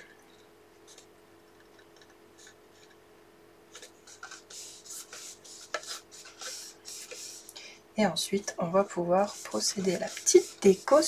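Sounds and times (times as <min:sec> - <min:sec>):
paper box rustling and scraping: 0:03.7 - 0:07.5.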